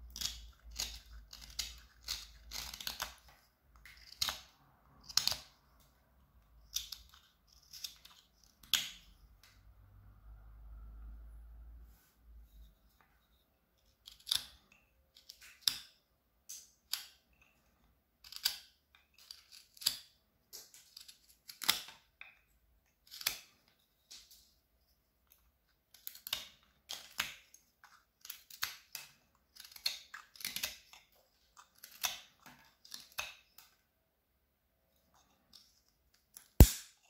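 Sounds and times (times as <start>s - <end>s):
knife shaving wood: 0.0s - 5.6s, 6.6s - 9.0s, 18.2s - 22.0s, 23.0s - 24.4s, 25.9s - 33.7s.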